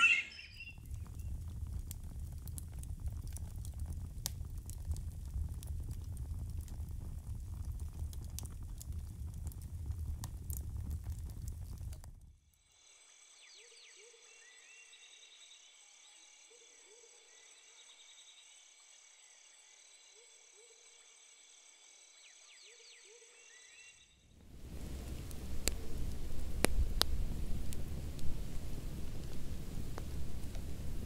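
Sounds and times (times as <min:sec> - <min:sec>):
short rising calls: 0:00.0 - 0:00.7
insect-like trill: 0:00.0 - 0:00.8
crackling fire with pops: 0:00.0 - 0:12.4, 0:24.3 - 0:31.0.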